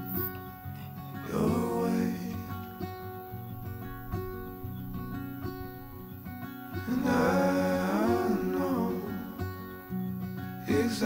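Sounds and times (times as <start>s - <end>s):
acoustic guitar song: 0.0s - 11.0s
person singing: 1.2s - 2.8s, 6.8s - 9.7s, 10.7s - 11.0s.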